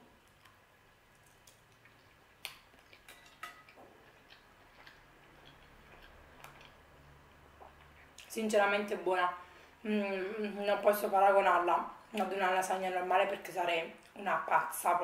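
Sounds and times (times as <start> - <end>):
mouth clicks of chewing: 1.2 - 6.8.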